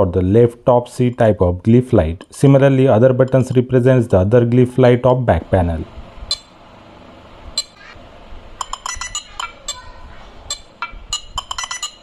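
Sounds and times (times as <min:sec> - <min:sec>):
bright clinking electronic tones: 0:08.6 - 0:09.8, 0:10.5 - 0:12.0.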